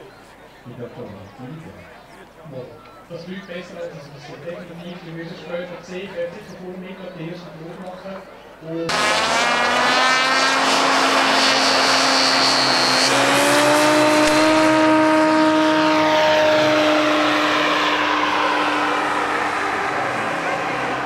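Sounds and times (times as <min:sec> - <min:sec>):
model plane engine drone: 0:08.9 - 0:21.0.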